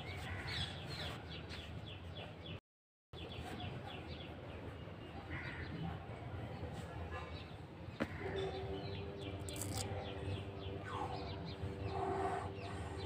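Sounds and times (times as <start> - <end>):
birds chirping: 7.4 - 13.0.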